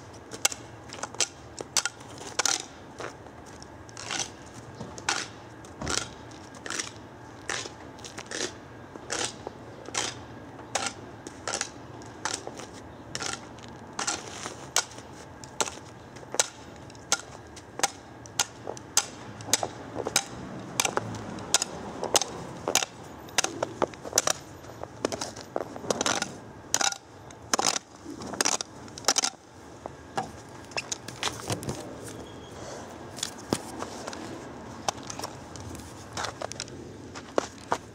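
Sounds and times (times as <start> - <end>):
sharp irregular clicks and crunches: 0.3 - 29.4.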